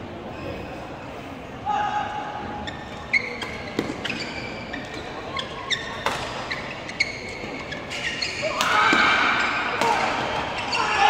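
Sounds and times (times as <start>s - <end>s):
shoes squeaking on court floor: 2.6s - 11.0s.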